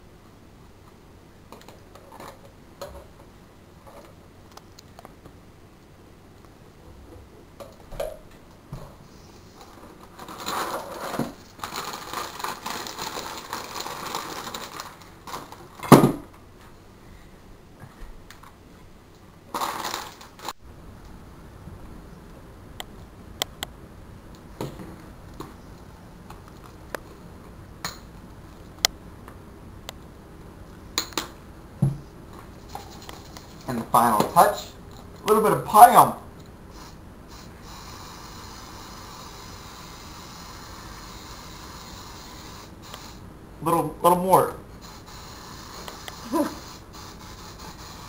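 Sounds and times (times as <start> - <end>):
rustling and scraping: 8.8 - 15.9, 31.9 - 34.3.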